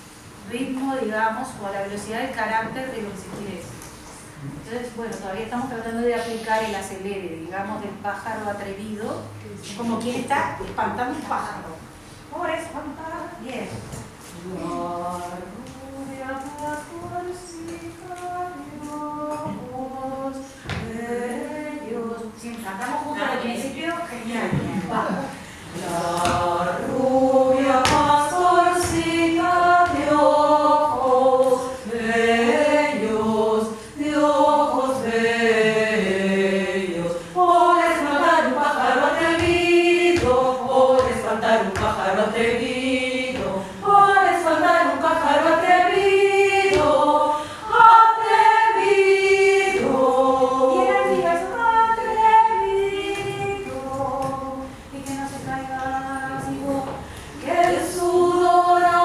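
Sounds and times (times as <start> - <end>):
women's choir singing: 14.2 - 59.0.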